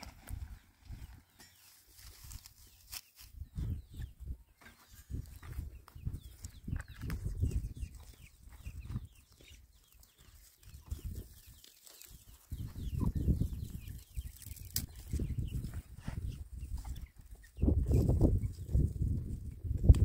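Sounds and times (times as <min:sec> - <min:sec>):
chicks peeping: 0:00.0 - 0:20.0
hen clucking: 0:03.6 - 0:14.4.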